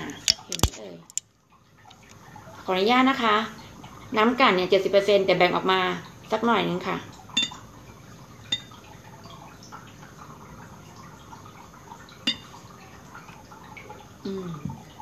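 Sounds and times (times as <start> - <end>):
liquid dripping and trickling: 0.0 - 15.0
glassware clinking: 7.4 - 7.6, 8.5 - 8.8, 12.2 - 12.5.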